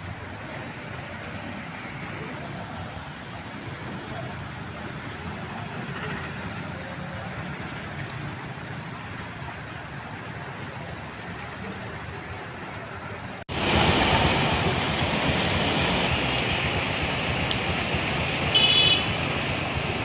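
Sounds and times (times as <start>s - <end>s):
rushing water: 0.0s - 20.0s
vehicle engines: 0.0s - 20.0s
vehicle horn honking: 18.5s - 19.2s.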